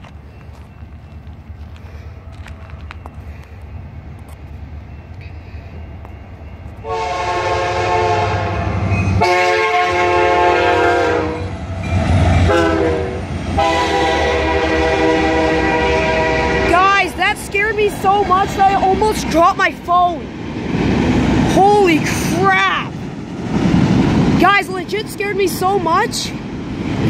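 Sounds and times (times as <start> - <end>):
train rumbling past: 0.0 - 27.0
locomotive horn blasts: 6.8 - 11.6, 12.4 - 17.1.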